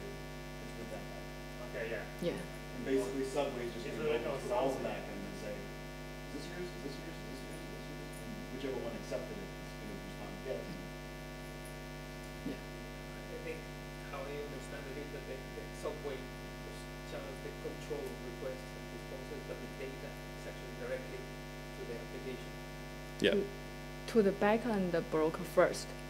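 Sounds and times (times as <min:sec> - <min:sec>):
electrical mains hum: 0:00.0 - 0:26.0
person speaking off-microphone: 0:23.2 - 0:23.5.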